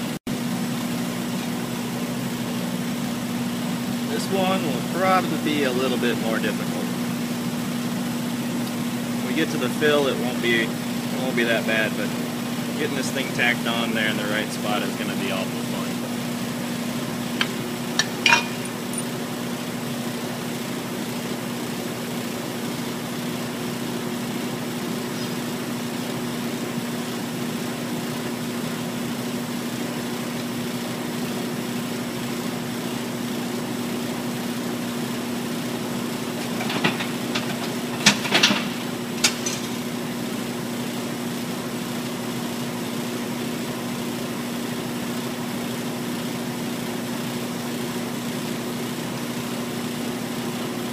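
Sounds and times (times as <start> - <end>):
steady machine hum: 0.0 - 50.9
metal clinks: 18.0 - 19.2.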